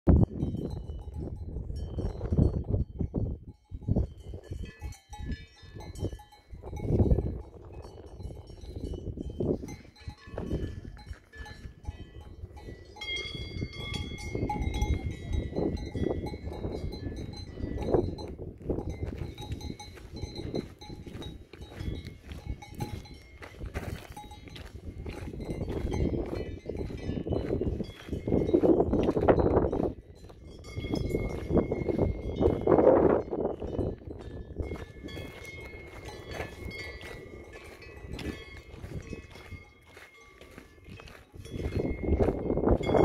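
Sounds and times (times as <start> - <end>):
cowbells ringing: 0.1 - 43.0.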